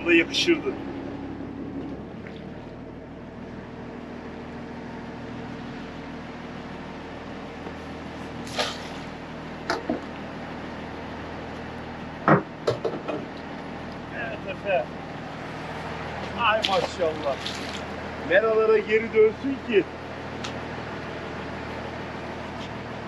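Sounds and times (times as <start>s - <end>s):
boat engine idling: 0.0s - 23.0s.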